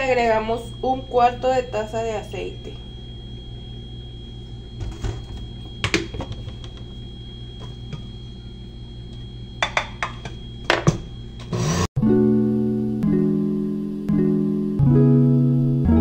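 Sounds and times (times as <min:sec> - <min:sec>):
steady low hum: 0:00.0 - 0:11.9
kitchen items knocking and clunking: 0:04.8 - 0:06.9, 0:09.6 - 0:11.5.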